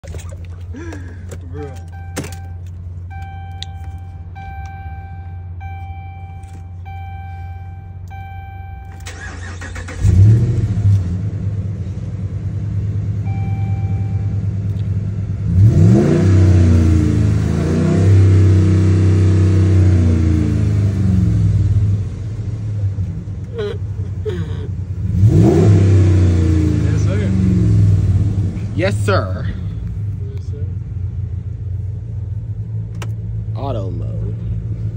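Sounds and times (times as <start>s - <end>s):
dashboard warning chime beeping: 1.6s - 9.9s, 13.2s - 14.4s
truck engine starting and revving: 4.4s - 31.4s.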